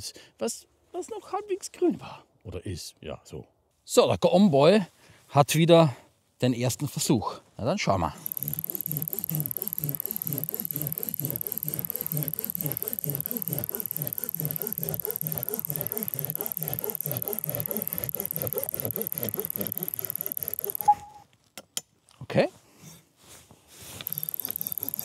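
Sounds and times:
pruning saw cutting stick: 8.0 - 21.2, 23.8 - 25.0
steady high-pitched tone: 20.8 - 21.2.

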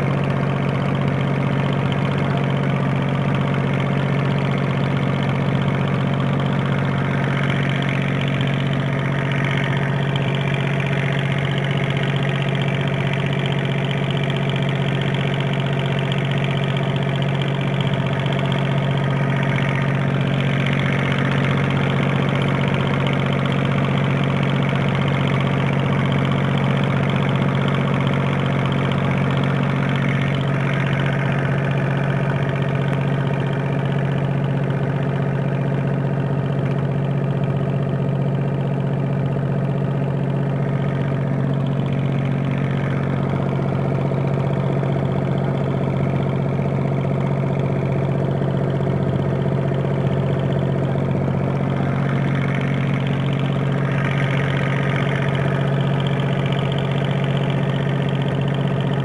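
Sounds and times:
boat engine running: 0.0 - 59.0.

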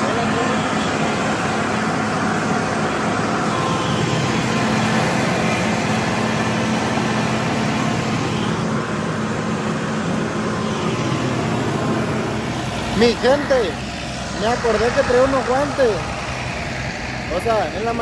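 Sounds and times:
tractor diesel engine under load: 0.0 - 18.0.

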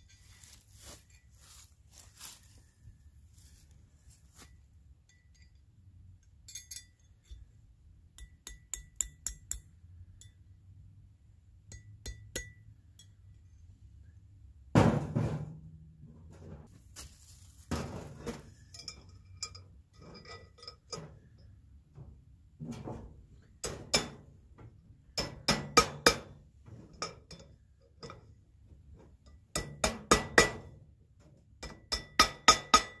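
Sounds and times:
metal clinks and taps: 4.4 - 10.6, 11.6 - 13.5, 18.5 - 21.6, 25.2 - 28.4
loud thump: 14.8 - 15.6.

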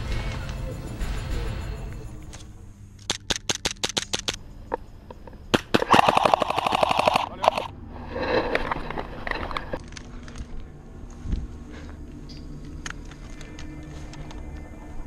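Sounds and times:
airsoft pistol shots: 5.5 - 7.3
airsoft full-auto burst: 5.5 - 7.7.

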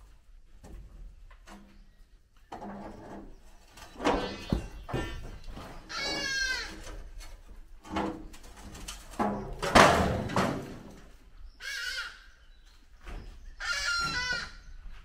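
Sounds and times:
wooden clatter: 0.6 - 11.2.

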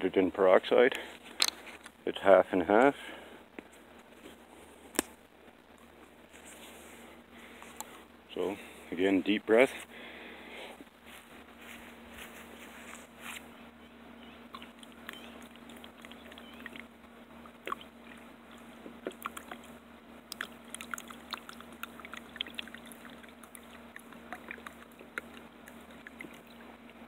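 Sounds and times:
small splashes and crackles: 14.5 - 16.9, 17.5 - 27.0.

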